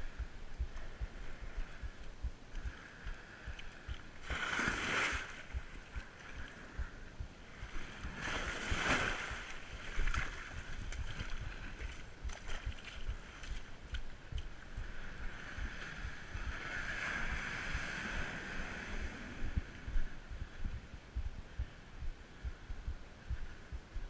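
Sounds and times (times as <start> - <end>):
wind rumble on microphone: 0.0 - 24.0
paddle strokes splashing in water: 4.2 - 6.6, 8.1 - 14.0.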